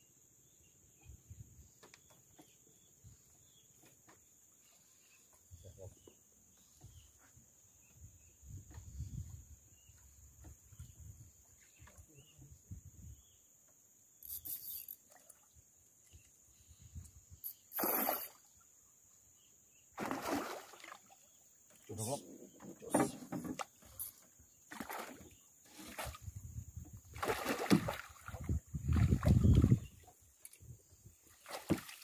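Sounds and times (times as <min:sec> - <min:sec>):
water splashing around boat: 0:20.0 - 0:26.3, 0:27.1 - 0:30.6, 0:31.2 - 0:32.0.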